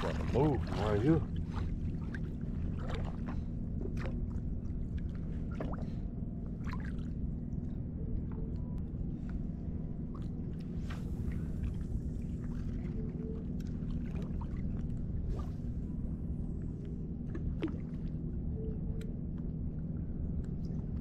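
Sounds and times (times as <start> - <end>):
water sloshing around legs: 0.0 - 7.3, 10.0 - 16.0, 17.2 - 18.3
low rumble: 0.0 - 21.0.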